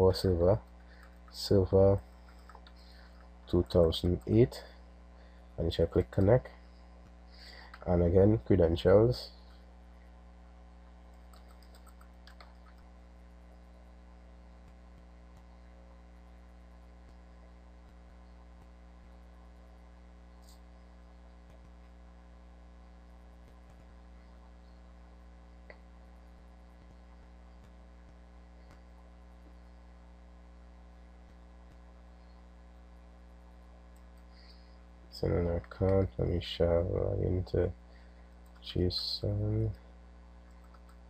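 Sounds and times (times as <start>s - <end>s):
faint mains hum: 0.0s - 41.0s
computer mouse clicks: 2.1s - 4.4s, 11.1s - 12.9s, 40.5s - 41.0s.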